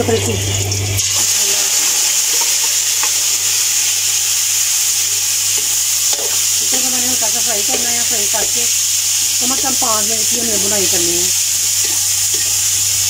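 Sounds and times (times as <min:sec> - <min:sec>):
person speaking: 0:00.0 - 0:00.7, 0:06.2 - 0:08.8, 0:09.4 - 0:11.3
chicken sizzling in hot oil: 0:00.0 - 0:13.0.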